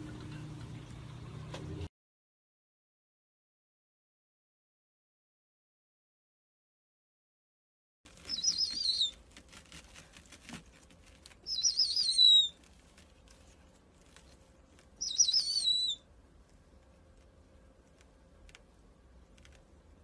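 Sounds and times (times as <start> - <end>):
owl whistled calls: 8.3 - 9.2, 11.4 - 12.6, 15.0 - 16.1.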